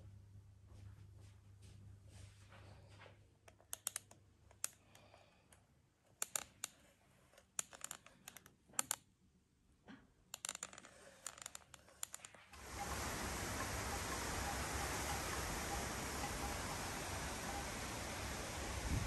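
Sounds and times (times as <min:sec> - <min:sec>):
small hard objects clicking: 0:07.6 - 0:09.0, 0:10.3 - 0:12.6.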